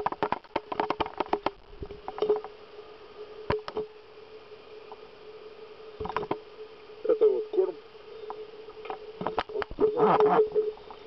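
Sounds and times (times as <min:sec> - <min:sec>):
sharp irregular clicks and cracks: 0:00.0 - 0:02.6, 0:03.5 - 0:03.9, 0:06.0 - 0:06.4
faint steady hum: 0:00.0 - 0:11.0.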